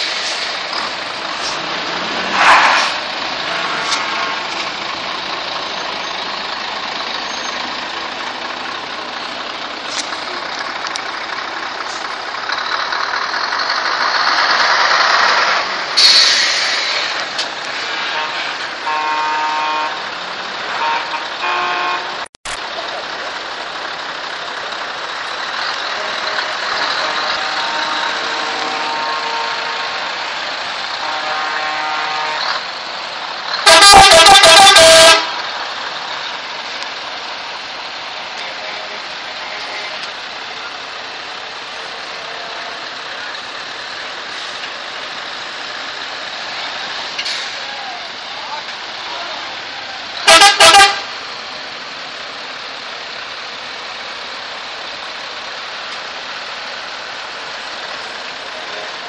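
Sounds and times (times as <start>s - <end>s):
heavy trucks rolling past: 0.0s - 59.0s
tyres on road: 0.0s - 59.0s
truck air horn blasts: 1.4s - 4.6s, 17.8s - 20.1s, 20.7s - 22.3s, 25.8s - 32.7s, 33.6s - 35.4s, 38.4s - 40.0s, 50.2s - 51.2s.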